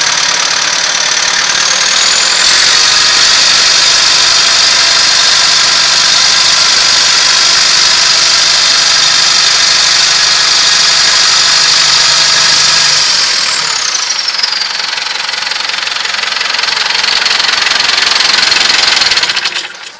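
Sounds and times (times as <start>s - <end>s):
high whine falling in pitch: 0.0s - 15.3s
tractor diesel engine running: 0.0s - 19.9s.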